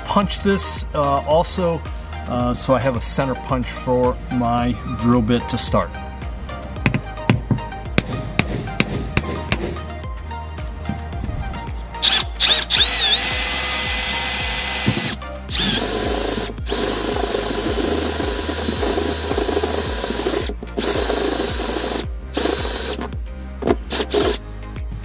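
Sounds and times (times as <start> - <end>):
cordless drill drilling metal: 12.0 - 24.4.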